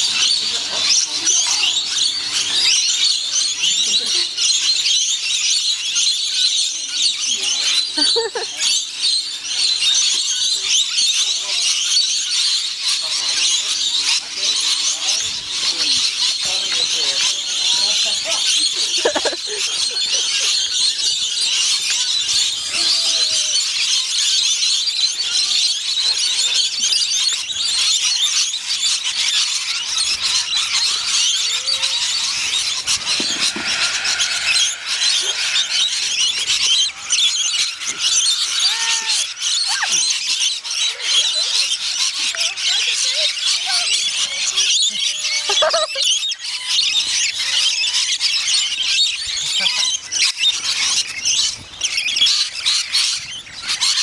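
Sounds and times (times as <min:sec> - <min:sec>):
parrots screeching: 0:27.1 - 0:54.0.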